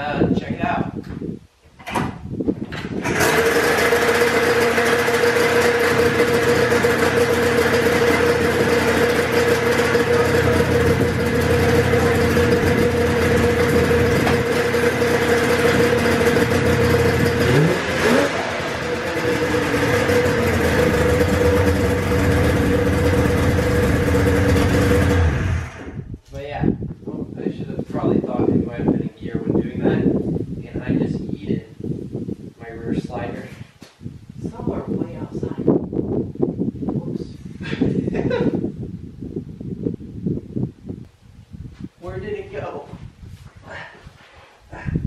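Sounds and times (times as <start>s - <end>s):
snowmobile engine idling: 3.1s - 26.0s.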